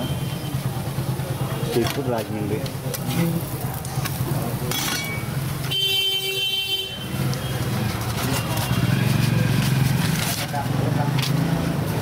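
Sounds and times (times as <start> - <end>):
low street hum: 0.0 - 12.0
vehicle horn honking: 5.7 - 7.6.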